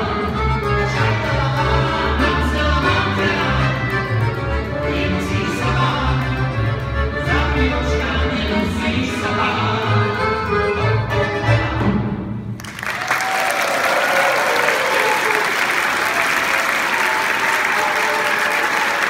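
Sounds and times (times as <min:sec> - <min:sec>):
violin accordion and double bass: 0:00.0 - 0:12.4
audience applause: 0:12.6 - 0:19.0.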